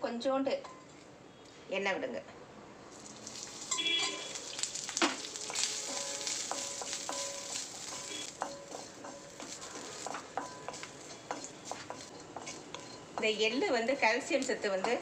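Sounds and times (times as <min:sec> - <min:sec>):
coconut pieces sizzling in oil: 0:02.9 - 0:15.0
spatula scraping a pan: 0:05.2 - 0:14.0.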